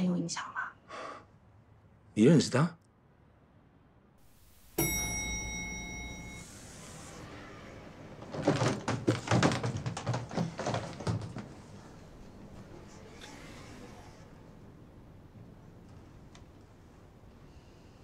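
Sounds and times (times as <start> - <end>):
elevator chime: 4.5 - 7.4
elevator doors sliding open: 4.8 - 12.7
suitcase wheels rattling: 7.9 - 12.2.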